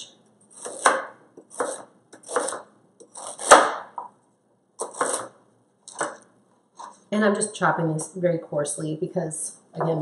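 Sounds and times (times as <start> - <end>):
knife chopping on plastic board: 0.6 - 4.1, 4.8 - 6.2.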